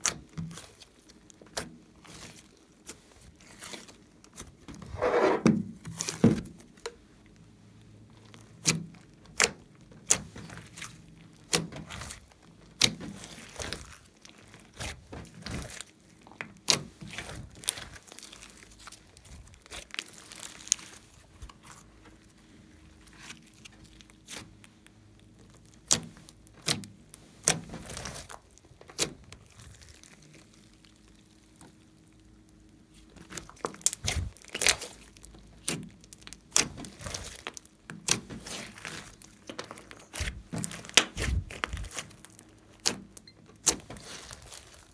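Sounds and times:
slime squeezed by hand: 33.0 - 42.9.

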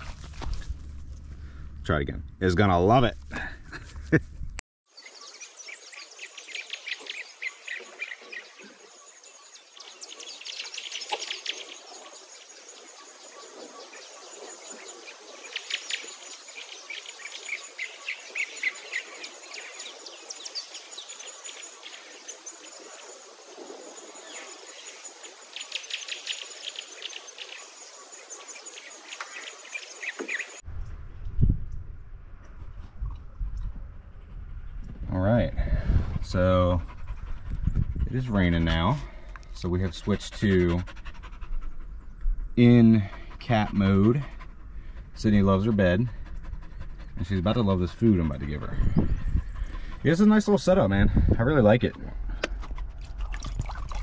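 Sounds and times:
high pulsing insect call: 4.9 - 30.6
birds trilling: 5.0 - 30.6, 39.6 - 50.8.

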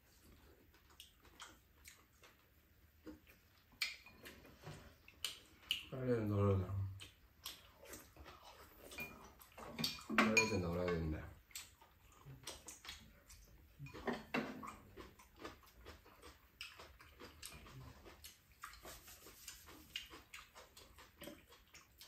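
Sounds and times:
chewing and mouth noises: 0.1 - 6.0, 6.8 - 22.0
utensils clicking against bowls: 8.9 - 11.7.

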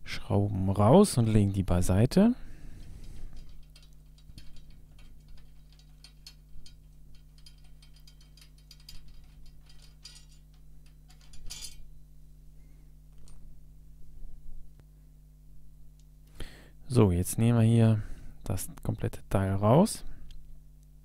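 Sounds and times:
small metallic clicks: 2.8 - 11.9.

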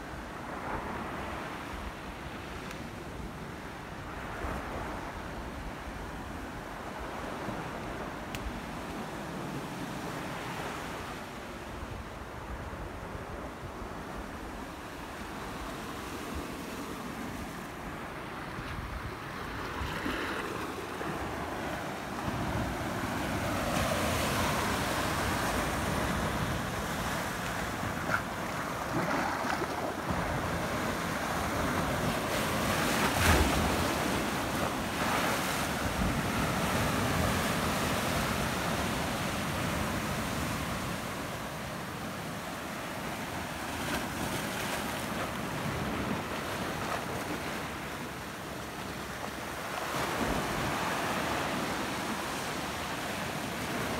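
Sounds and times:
sea waves surging among rocks: 14.8 - 53.9.

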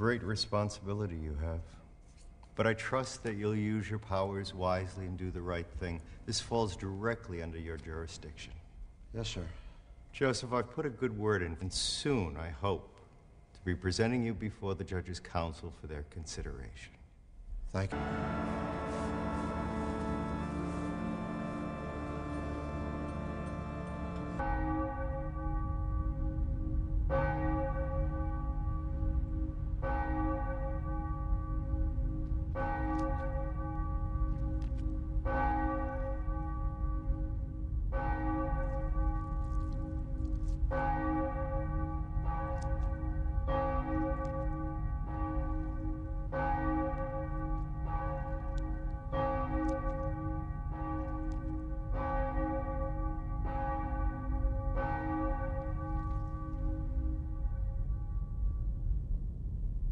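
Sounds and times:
low steady rumble: 0.0 - 59.9
large bell tolling: 17.8 - 58.8.

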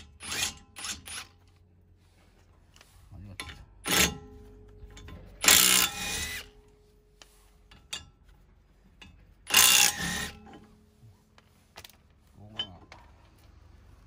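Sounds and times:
impact wrench bursts: 0.0 - 1.4, 3.8 - 4.3, 5.4 - 6.6, 9.4 - 10.6.

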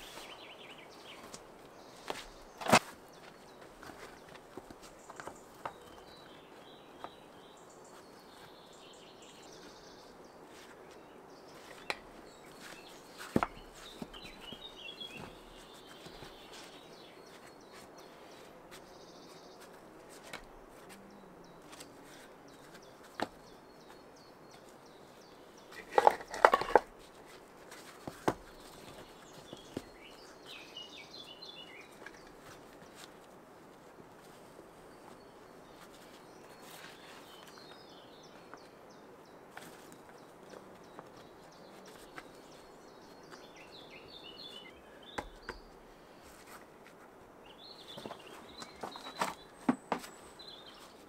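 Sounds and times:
birds chirping: 0.0 - 51.0
stones knocking together: 25.8 - 26.9.

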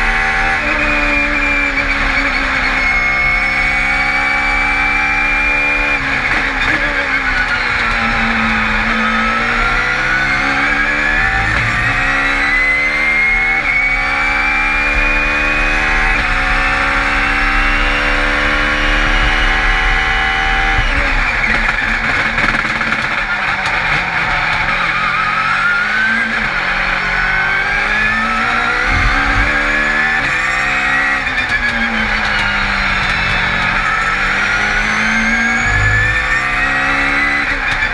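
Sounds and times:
race car engine accelerating: 0.0 - 37.9
high whine rising with revs: 7.5 - 21.4, 27.2 - 37.9.

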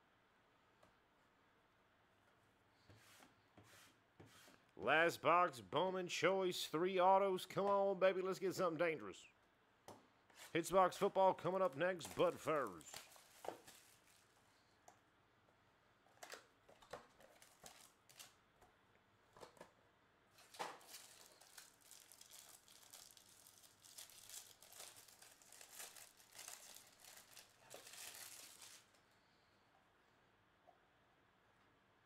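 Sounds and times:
foil pack tearing and crinkling: 17.3 - 18.4, 20.4 - 29.0.

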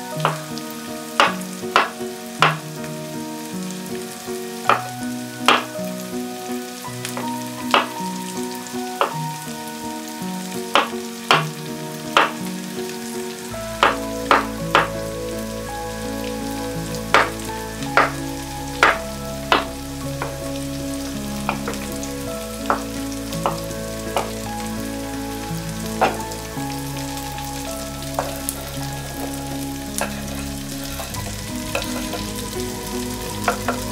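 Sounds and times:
soft background music: 0.0 - 33.9
deep bass: 13.5 - 33.9.

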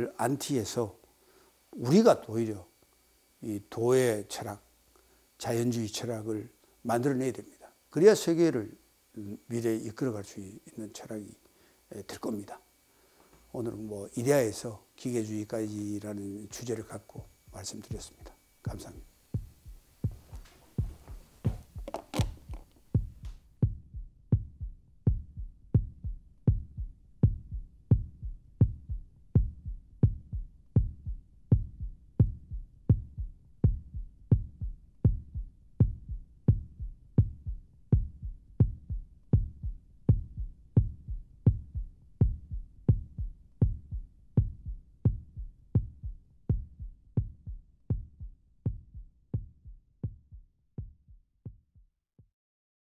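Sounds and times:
low thumping music beat: 15.7 - 51.8.

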